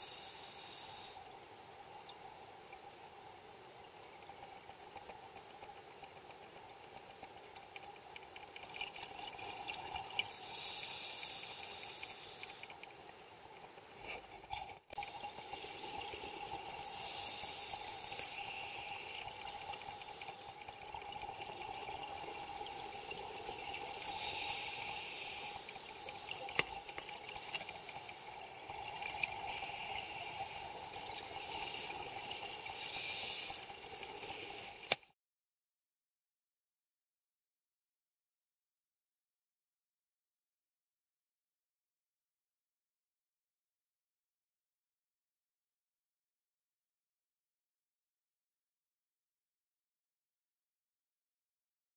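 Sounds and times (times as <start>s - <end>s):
diver breathing through regulator: 10.3s - 12.7s, 16.8s - 19.0s, 23.9s - 26.4s, 32.7s - 33.7s.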